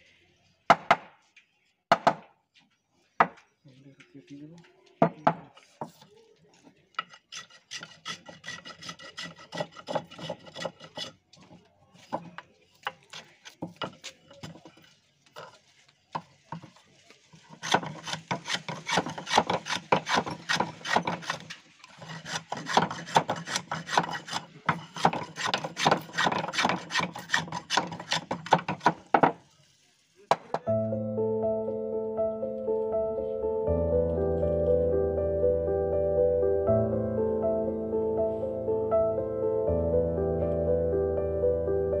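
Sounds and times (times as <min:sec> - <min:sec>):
hand plane scraping wood: 0:07.0 - 0:15.5, 0:17.4 - 0:29.0.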